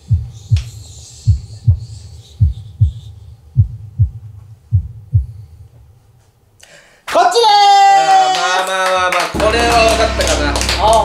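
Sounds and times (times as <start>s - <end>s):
heartbeat thumps: 0.0s - 5.9s.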